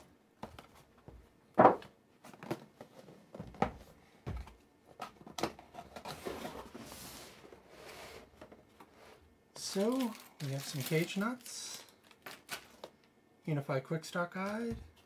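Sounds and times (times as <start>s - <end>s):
cardboard rustling: 9.6s - 12.9s.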